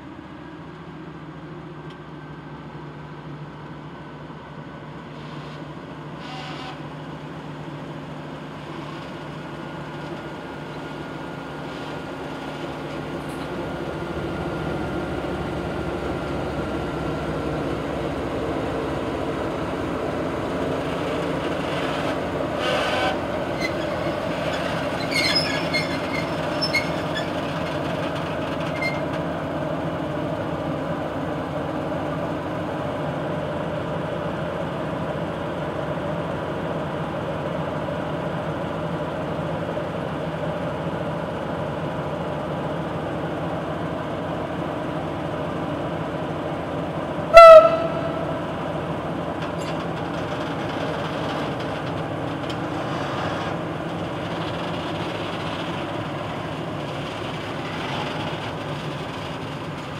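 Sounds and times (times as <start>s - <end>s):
diesel locomotive engine running: 0.0s - 59.9s
locomotive horn blast: 6.2s - 6.8s, 22.6s - 23.3s, 47.3s - 48.5s
short squeaks and clicks: 22.0s - 29.2s, 49.4s - 53.6s.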